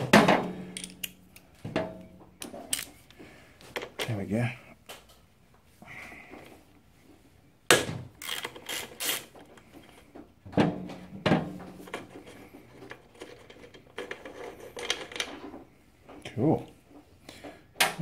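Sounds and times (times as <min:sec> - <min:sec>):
steel tools clinking: 0:00.7 - 0:01.4
hand ratchet clicking: 0:08.2 - 0:09.3.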